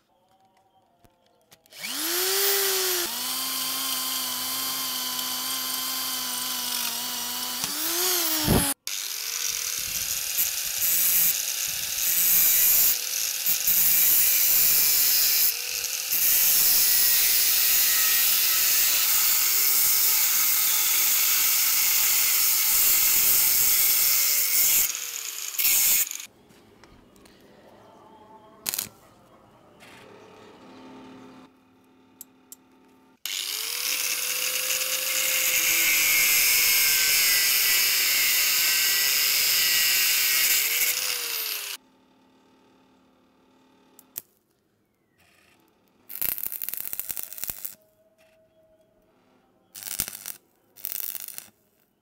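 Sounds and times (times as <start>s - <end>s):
angle grinder cutting steel: 1.7s - 26.3s, 33.3s - 41.8s, 49.8s - 51.5s.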